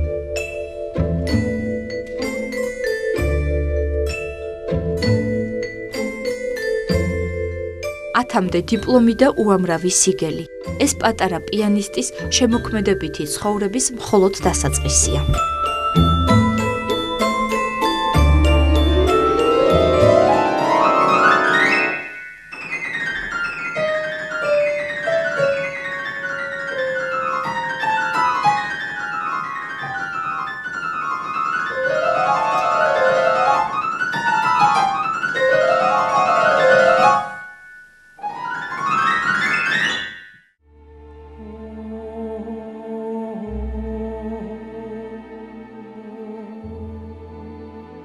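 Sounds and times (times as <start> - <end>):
grand piano playing fast runs: 14.2 - 40.4.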